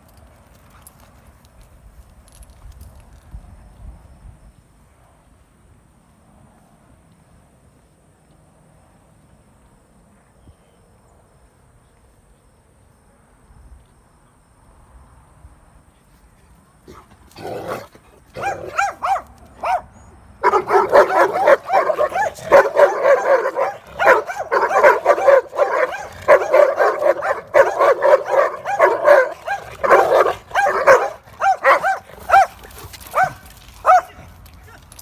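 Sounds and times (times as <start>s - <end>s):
dogs barking: 16.9s - 34.2s.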